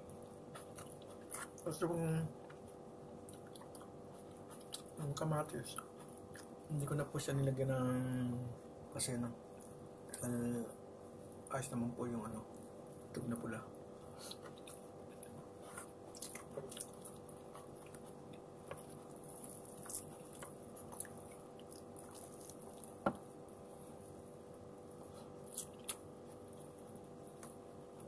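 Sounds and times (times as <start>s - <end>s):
steady low hum: 0.0s - 28.0s
chewing and mouth noises: 0.4s - 1.7s, 2.4s - 5.0s, 5.7s - 6.6s, 14.1s - 23.2s, 25.1s - 27.6s.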